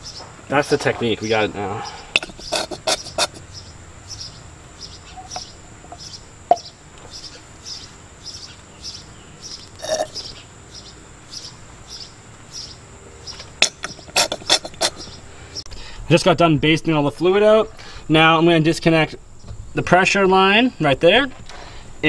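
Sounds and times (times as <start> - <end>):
faint chirping: 1.2 - 16.0.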